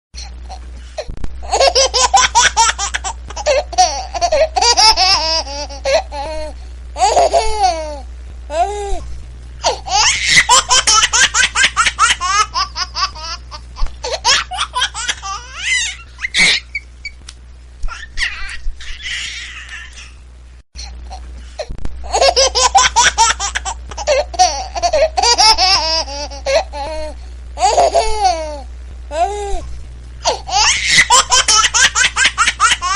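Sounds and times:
steady low hum: 0.2s - 32.9s
high-pitched laughter: 9.9s - 13.4s, 14.1s - 16.9s, 30.5s - 32.9s.

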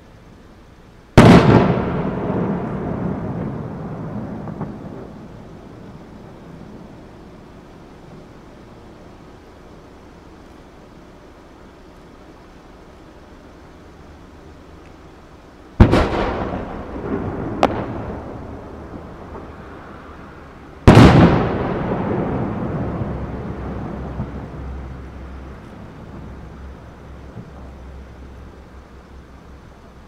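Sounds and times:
firework sharp crack: 1.1s - 9.0s, 15.7s - 28.4s
fireworks bangs: 1.1s - 9.7s, 15.7s - 29.0s.

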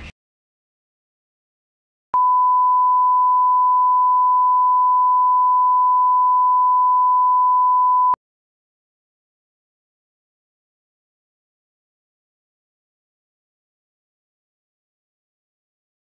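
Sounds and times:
steady reference tone beep: 2.2s - 8.2s.

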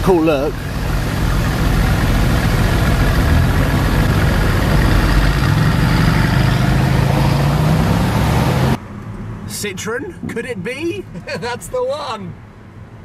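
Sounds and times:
car engines idling: 0.0s - 8.8s.

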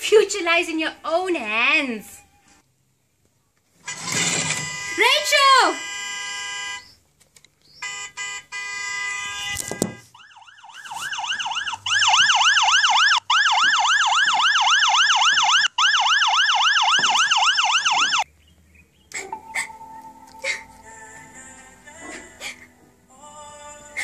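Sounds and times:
ambulance siren wailing: 7.8s - 18.3s.

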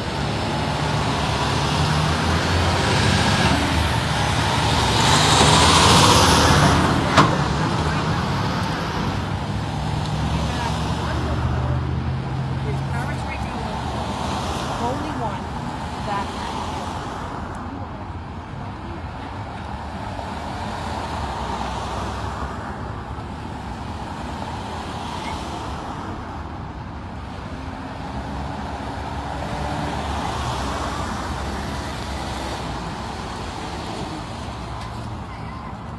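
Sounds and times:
large truck passing: 0.0s - 16.8s
vehicles driving past: 0.0s - 35.9s.

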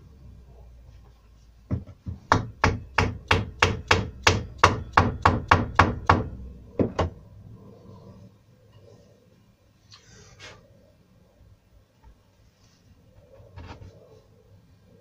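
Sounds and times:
hammer knocking on wooden block: 1.7s - 7.2s.

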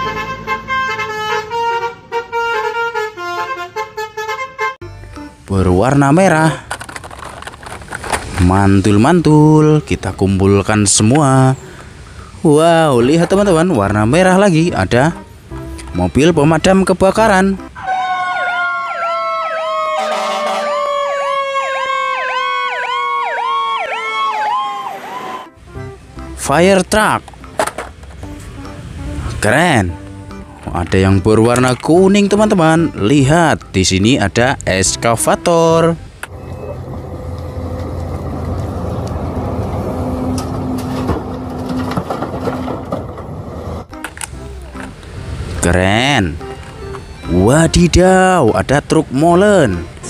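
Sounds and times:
heavy machinery engine rumbling: 4.9s - 17.9s, 34.8s - 50.0s
fire truck siren wailing: 17.7s - 25.6s, 36.3s - 41.8s.

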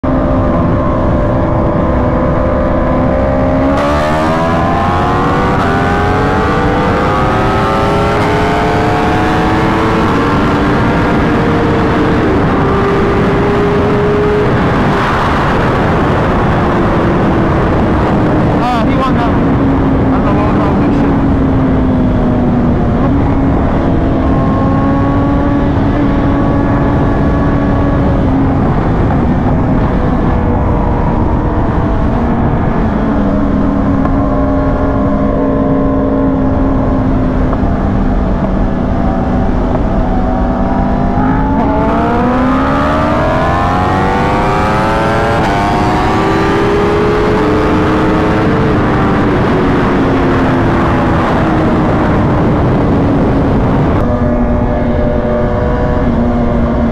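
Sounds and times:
vehicle engine revving: 0.0s - 56.9s.

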